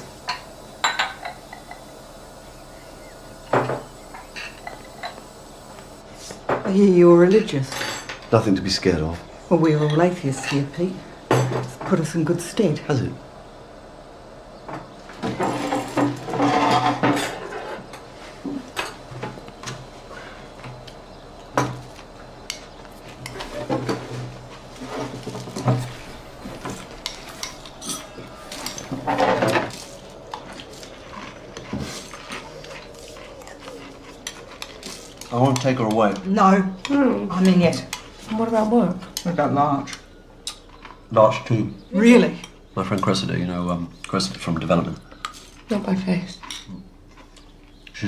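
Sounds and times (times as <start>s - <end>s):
crockery and cutlery clanking: 0.2s - 1.9s, 6.5s - 8.6s, 14.7s - 17.8s, 23.2s - 36.2s
dishes and cutlery clinking: 3.6s - 5.2s, 24.9s - 38.1s.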